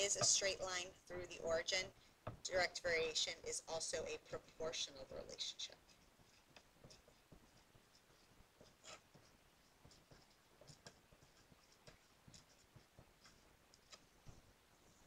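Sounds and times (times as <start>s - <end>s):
pencil writing on paper: 5.7s - 15.0s.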